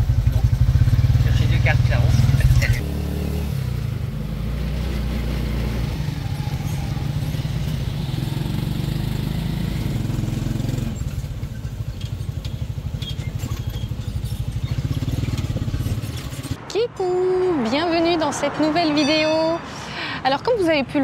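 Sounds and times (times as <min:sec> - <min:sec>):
small motorcycle engine running: 0:00.0 - 0:03.5, 0:04.7 - 0:16.6.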